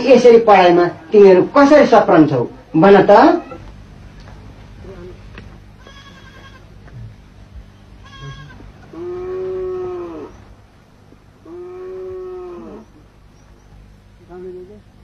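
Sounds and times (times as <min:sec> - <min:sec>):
farm animal calling: 0:03.1 - 0:03.7, 0:04.8 - 0:06.8, 0:07.7 - 0:10.5, 0:11.4 - 0:13.7.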